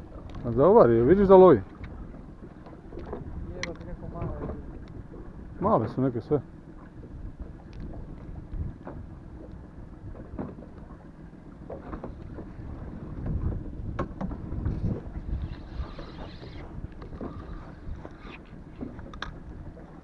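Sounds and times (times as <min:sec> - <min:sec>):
sea water washing: 0:00.0 - 0:20.0
wind buffeting microphone: 0:00.0 - 0:20.0
fishing rod clicks and knocks: 0:02.6 - 0:05.0, 0:13.2 - 0:14.4, 0:15.4 - 0:19.6.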